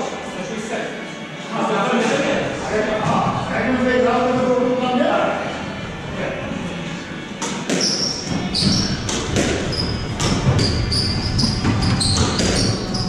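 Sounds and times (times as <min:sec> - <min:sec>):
squash ball hitting rackets and walls: 0:07.3 - 0:13.0
shoes squeaking on wooden floor: 0:07.5 - 0:13.0.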